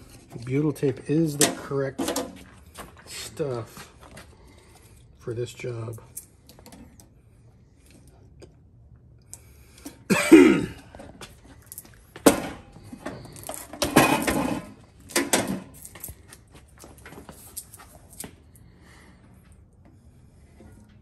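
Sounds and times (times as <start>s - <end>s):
man coughing: 10.0s - 11.1s.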